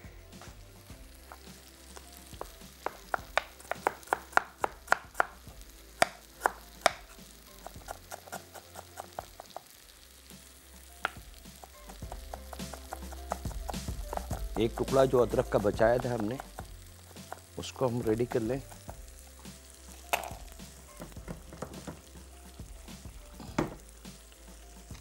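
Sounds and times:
knife chopping on cutting board: 2.4 - 5.4, 7.6 - 9.4, 11.9 - 15.0.

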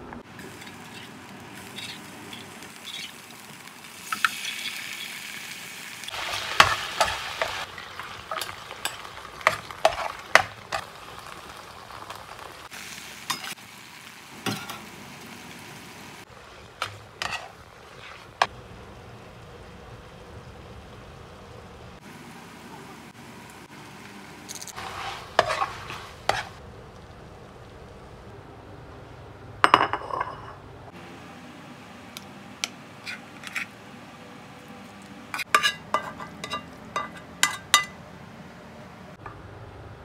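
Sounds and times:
food sizzling in a frying pan: 0.2 - 28.3, 34.8 - 38.0
utensil scraping a pan: 8.3 - 10.8, 16.8 - 18.5, 24.5 - 26.6, 35.4 - 37.6.

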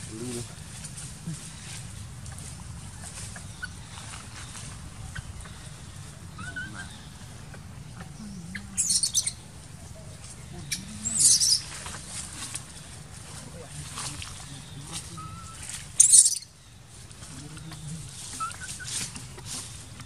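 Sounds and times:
high-pitched chirping calls: 1.4 - 9.5, 10.2 - 11.8, 14.5 - 16.6.

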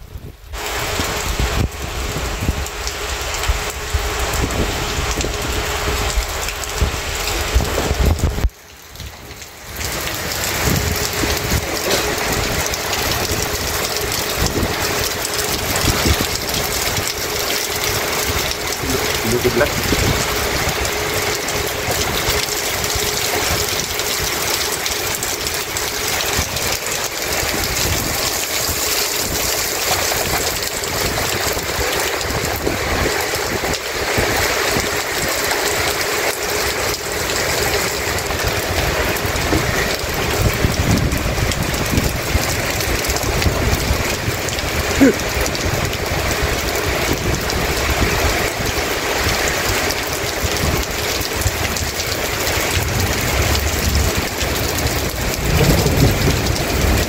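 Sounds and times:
heavy rain on pavement: 0.0 - 57.0
distant thunder rumble: 52.6 - 57.0.

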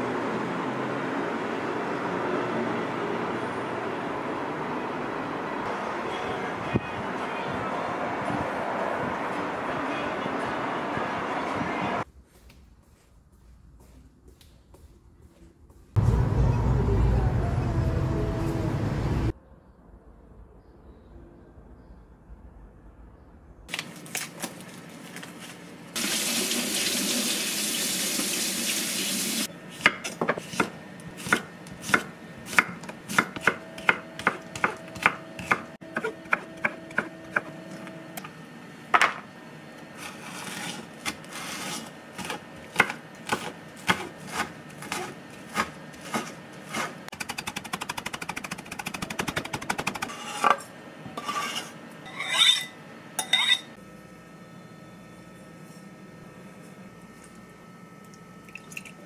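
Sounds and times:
knife chopping on wooden board: 29.8 - 37.5, 42.2 - 50.1.

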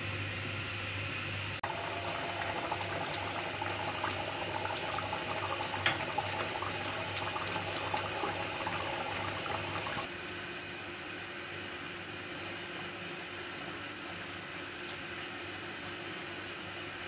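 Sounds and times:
curry bubbling in a pan: 1.6 - 10.1.

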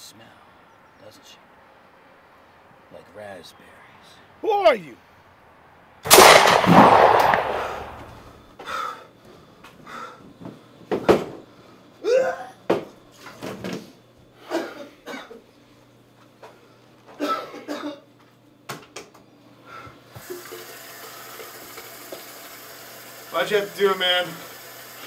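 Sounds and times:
man coughing and gasping: 14.4 - 15.4, 17.2 - 18.1
steady rushing hiss: 21.0 - 25.0.

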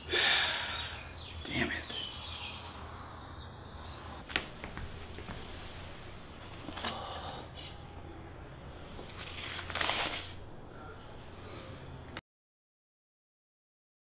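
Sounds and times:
paper rustling: 6.4 - 7.3, 9.0 - 10.4.

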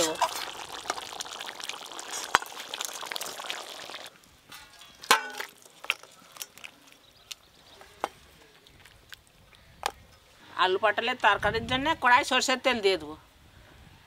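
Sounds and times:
curry bubbling in a wok: 0.0 - 4.2, 5.0 - 7.8
metal clank: 4.5 - 5.5.

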